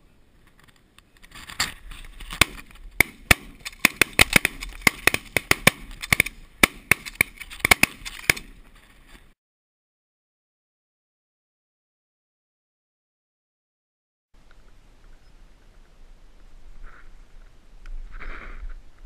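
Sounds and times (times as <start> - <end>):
shotgun shots: 2.3 - 8.6.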